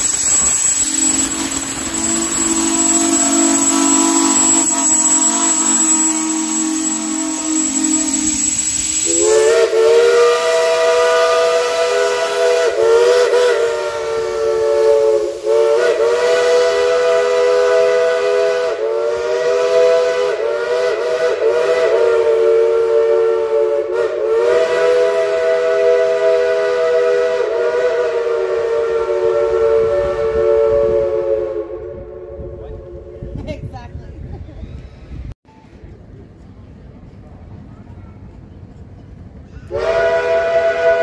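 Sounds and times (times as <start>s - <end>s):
steam locomotive whistle chord: 0.0s - 33.1s, 39.7s - 41.0s.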